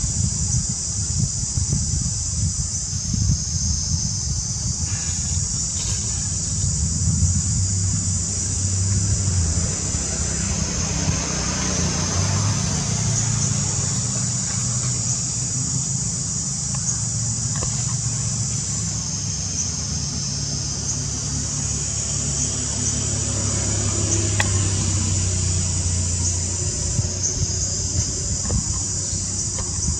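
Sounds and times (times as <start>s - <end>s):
high-pitched hiss: 0.0s - 29.9s
low motor-like hum: 0.1s - 29.9s.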